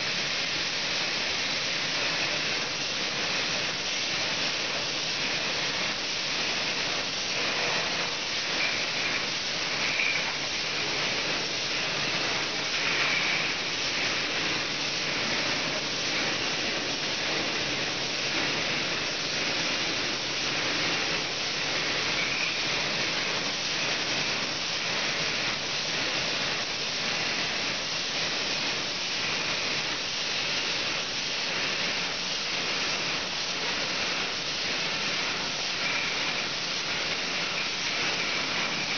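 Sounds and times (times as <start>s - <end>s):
hiss of water and air: 0.0s - 38.9s
bottles and machine clatter: 7.0s - 16.8s, 21.8s - 23.5s, 35.7s - 38.9s.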